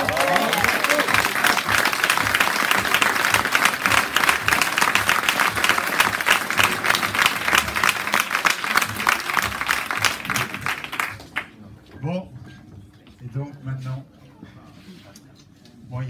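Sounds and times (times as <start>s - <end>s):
audience applauding: 0.0s - 11.6s.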